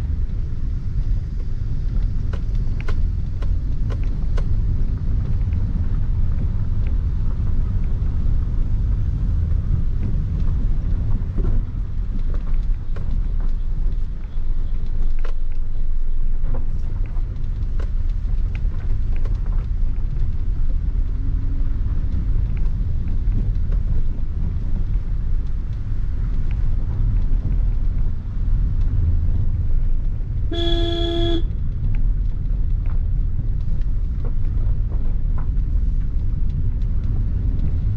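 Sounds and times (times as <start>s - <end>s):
car engine and tyres rumbling: 0.0s - 37.9s
car horn: 30.5s - 31.5s.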